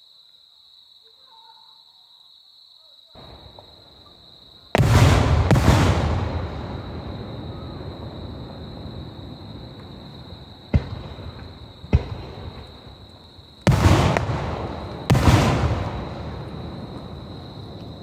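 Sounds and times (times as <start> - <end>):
loud firework bursts rumbling: 4.6 - 18.0
firework cracks: 4.7 - 18.0.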